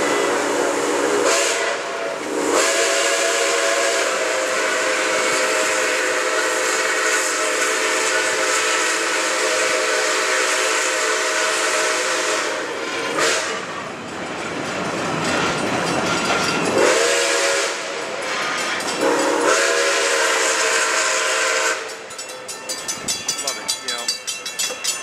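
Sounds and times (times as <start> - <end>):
steam locomotive whistle: 0.0 - 13.8, 16.7 - 22.2.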